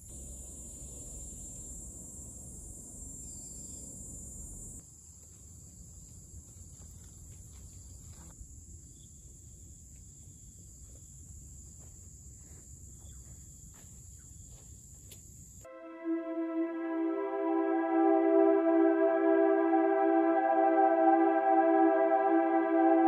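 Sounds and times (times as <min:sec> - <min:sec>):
insects droning: 0:00.0 - 0:15.6
soft footsteps on grass: 0:05.0 - 0:08.4, 0:09.9 - 0:15.4.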